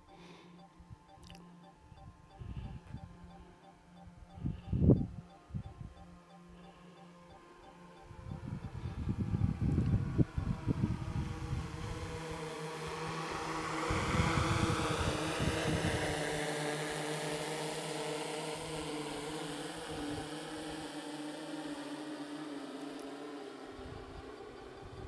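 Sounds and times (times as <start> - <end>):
drone propellers buzzing: 0.0 - 25.0
wind buffeting microphone: 4.4 - 5.9, 8.1 - 12.5, 13.7 - 16.2.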